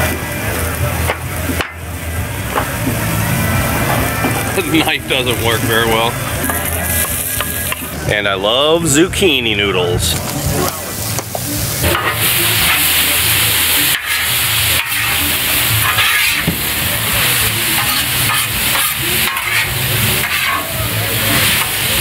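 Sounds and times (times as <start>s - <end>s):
food sizzling on a griddle: 0.0s - 8.0s, 9.9s - 22.0s
metal spatula scraping: 11.8s - 22.0s.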